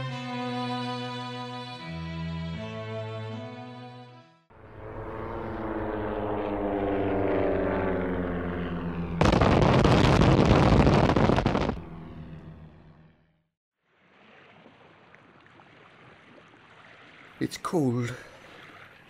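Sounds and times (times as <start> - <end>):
propeller aircraft engine droning: 4.5 - 13.5
loud explosion: 9.2 - 11.9.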